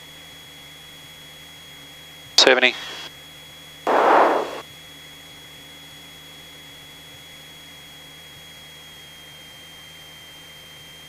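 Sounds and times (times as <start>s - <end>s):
intercom electrical hum: 2.4s - 3.1s, 3.9s - 4.6s
microphone hiss burst: 2.4s - 3.1s, 3.9s - 4.6s
thin high whine: 2.4s - 3.1s, 3.9s - 4.6s.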